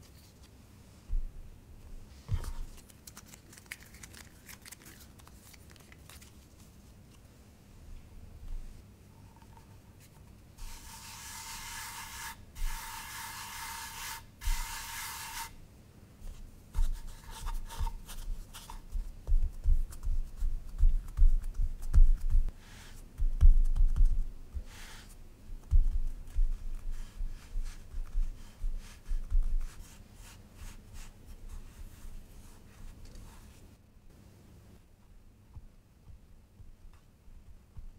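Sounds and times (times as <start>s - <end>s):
fingers patting dough: 16.8s - 22.5s, 23.1s - 24.8s, 25.5s - 30.0s.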